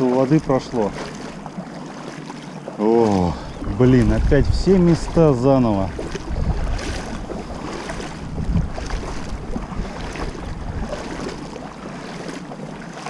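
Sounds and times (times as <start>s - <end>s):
flowing river water: 0.0s - 13.0s
wind buffeting microphone: 3.2s - 11.9s.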